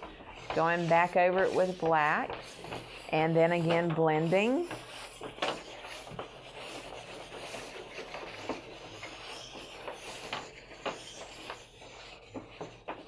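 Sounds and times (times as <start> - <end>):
pastel rubbing on paper: 0.0 - 13.0.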